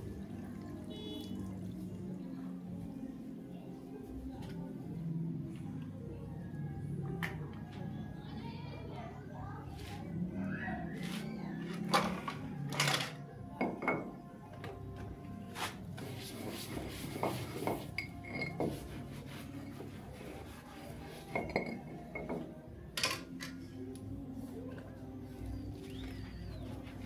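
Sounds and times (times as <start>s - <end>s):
dishes clinking and knocking: 11.8s - 14.7s, 17.2s - 18.9s, 21.3s - 23.6s.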